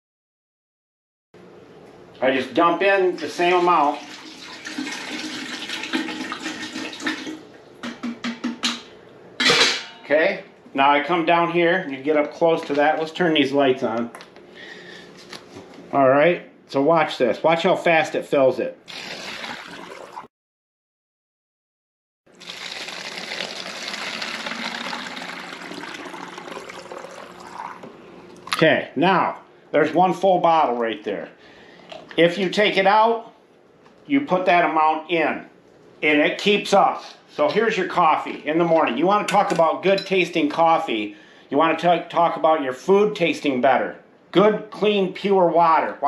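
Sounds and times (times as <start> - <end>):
water pouring from bottle: 18.9 - 20.3, 22.4 - 27.9.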